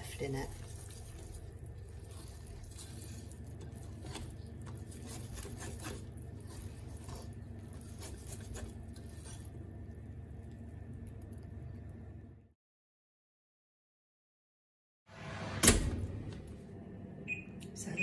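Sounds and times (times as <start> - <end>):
whisk beating batter in bowl: 0.0 - 9.6
steady low hum: 0.0 - 12.6.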